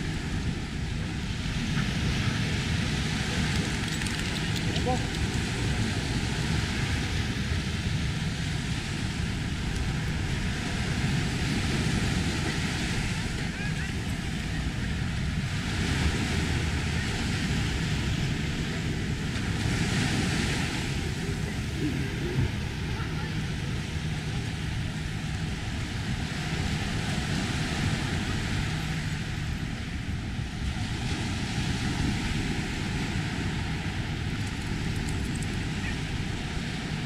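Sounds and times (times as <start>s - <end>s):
waves washing up beach: 0.0s - 37.0s
wind rumble on microphone: 0.0s - 37.0s.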